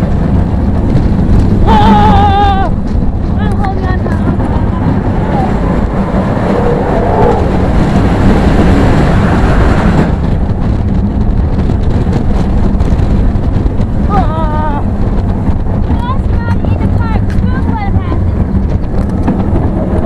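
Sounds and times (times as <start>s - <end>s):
roller coaster wheels rumbling: 0.0s - 20.0s
wind buffeting microphone: 0.0s - 20.0s
person yelling: 1.6s - 2.8s, 14.1s - 14.9s.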